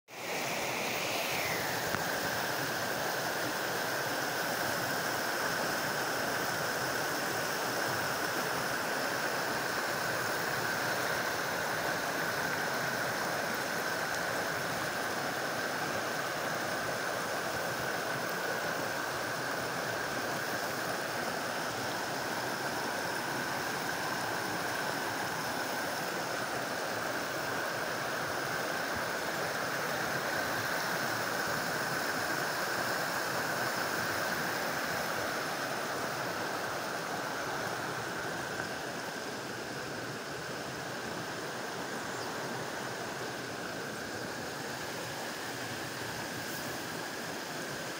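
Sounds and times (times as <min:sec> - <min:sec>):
creek rushing over rapids: 0:00.1 - 0:47.9.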